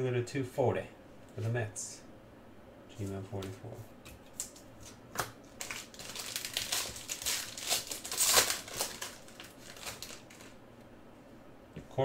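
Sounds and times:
foil wrapper crinkling: 0:04.4 - 0:10.6
sharp crackle of wrapper: 0:05.5 - 0:10.6.

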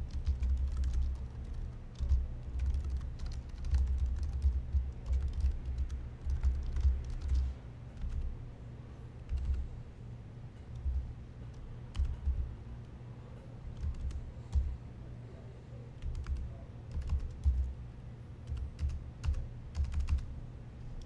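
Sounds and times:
typing on computer keyboard: 0:00.0 - 0:08.3, 0:09.3 - 0:09.6, 0:10.7 - 0:12.5, 0:13.8 - 0:14.7, 0:16.0 - 0:17.7, 0:18.4 - 0:20.3.

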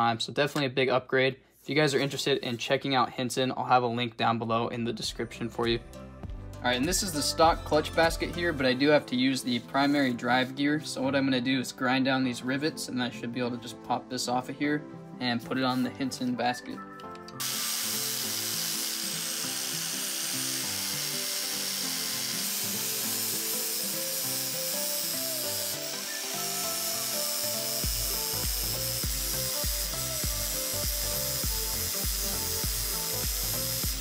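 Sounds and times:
angle grinder grinding metal: 0:17.4 - 0:34.0.

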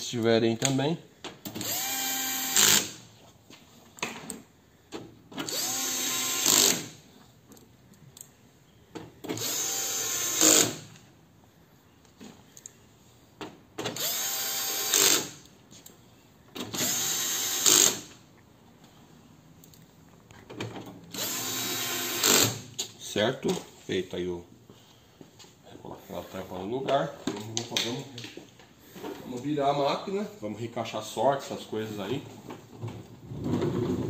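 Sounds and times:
electric screwdriver whine: 0:01.6 - 0:02.9, 0:05.5 - 0:06.8, 0:09.4 - 0:10.8, 0:14.0 - 0:15.3, 0:16.8 - 0:18.0, 0:21.2 - 0:22.6.

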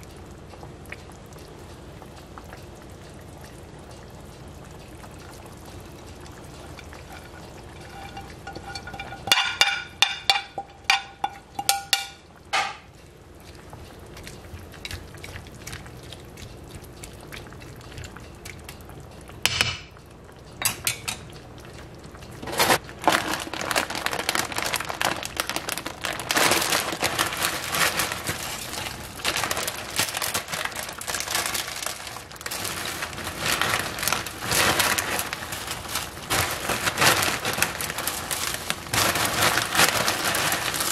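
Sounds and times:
dense crackling and rustling: 0:05.3 - 0:12.2, 0:22.2 - 0:40.9.

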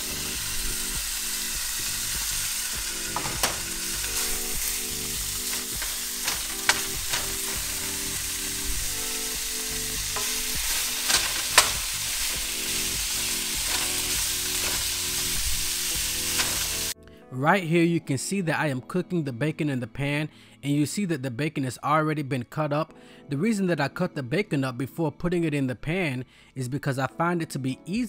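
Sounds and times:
bacon sizzling in a pan: 0:00.0 - 0:17.0
utensil clicking against pan: 0:03.0 - 0:08.2, 0:10.0 - 0:15.4, 0:16.1 - 0:16.9.

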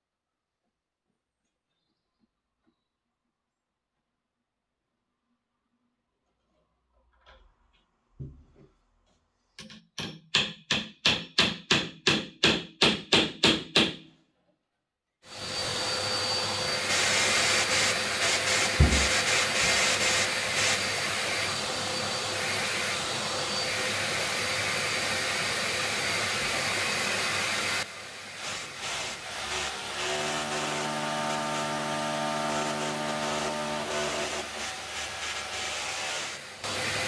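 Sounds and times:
drill boring into wall: 0:15.3 - 0:37.0
vacuum dust extractor: 0:15.3 - 0:37.0
thump: 0:18.8 - 0:19.1.

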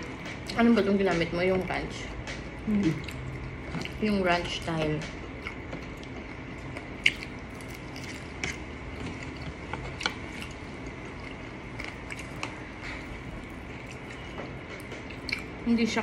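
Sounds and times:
wet mouth smacks eating: 0:07.0 - 0:09.2.

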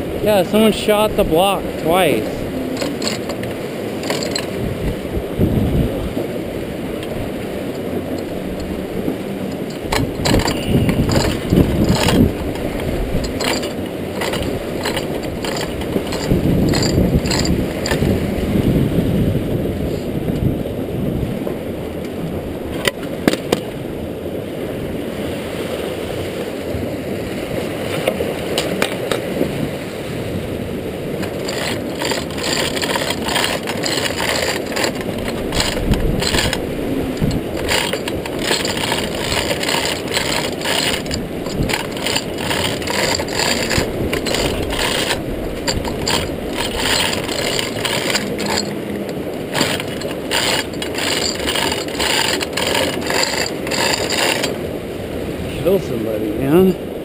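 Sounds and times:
chain rattle: 0:02.8 - 0:04.6, 0:09.5 - 0:18.1, 0:31.2 - 0:54.6
hoist ratcheting clicks: 0:02.8 - 0:04.6, 0:09.5 - 0:18.1, 0:31.2 - 0:54.6.

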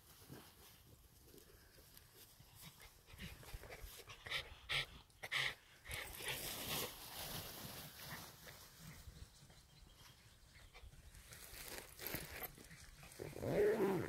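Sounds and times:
dogs making breathy sounds: 0:02.6 - 0:06.5.

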